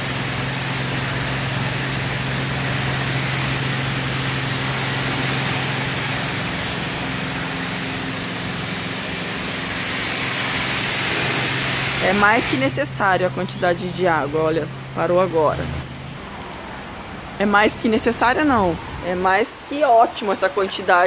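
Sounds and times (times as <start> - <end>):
pressure washer spraying water: 0.0 - 15.8.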